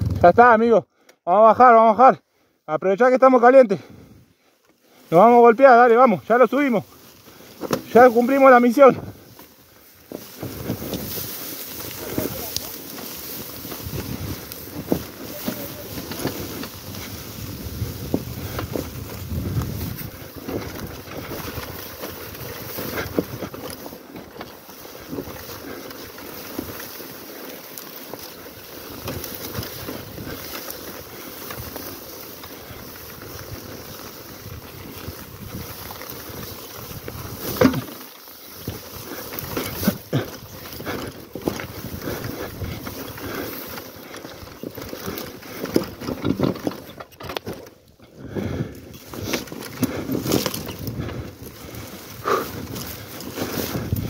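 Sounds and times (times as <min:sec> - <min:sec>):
wind on microphone: 0:00.0 - 0:00.3, 0:13.7 - 0:21.8, 0:33.2 - 0:37.6, 0:48.3 - 0:54.0
bike knocking and rattling: 0:00.0 - 0:00.4, 0:04.6 - 0:54.0.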